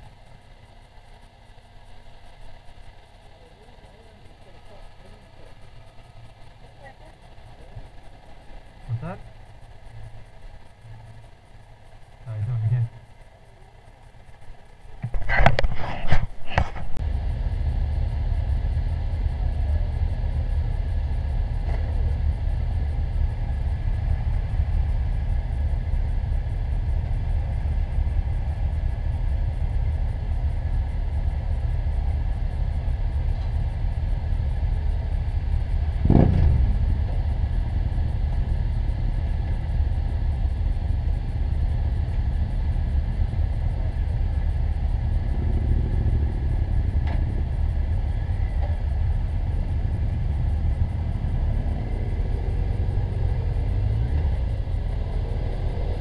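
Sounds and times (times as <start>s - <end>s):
motorcycle engines idling: 0.0s - 56.0s
loud thump with falling tone: 36.0s - 37.2s.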